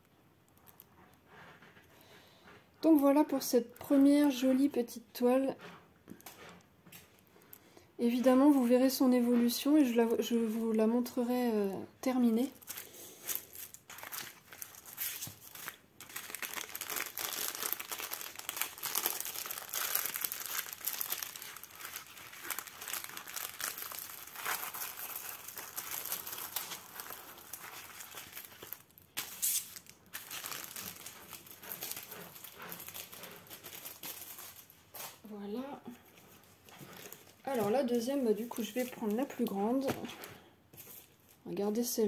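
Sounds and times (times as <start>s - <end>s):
plastic cover crinkling: 0.4s - 1.7s, 2.8s - 5.2s, 6.0s - 35.3s, 35.9s - 41.4s.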